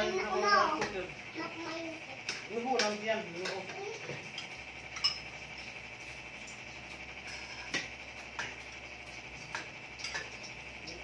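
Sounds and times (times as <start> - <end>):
utensils clinking against pot: 2.2 - 5.7, 9.4 - 11.0.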